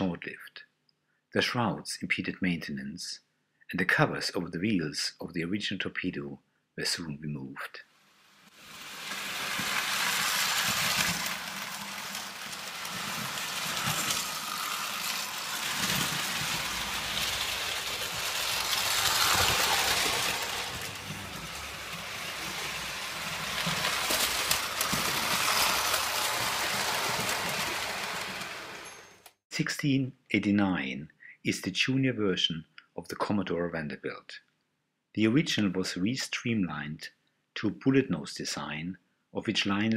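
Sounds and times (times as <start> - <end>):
toy train rumbling on metal track: 8.5 - 29.4.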